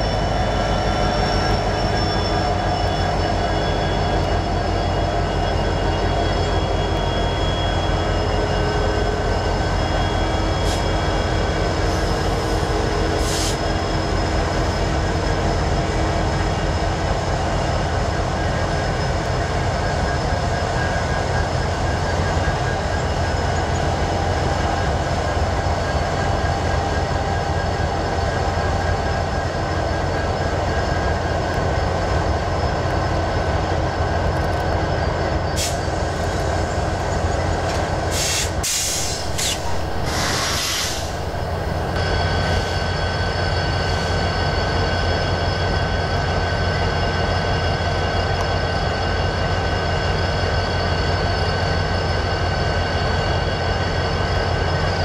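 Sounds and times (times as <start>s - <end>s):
locomotive engine drone: 0.0s - 55.0s
high-pitched whining tones: 38.8s - 55.0s.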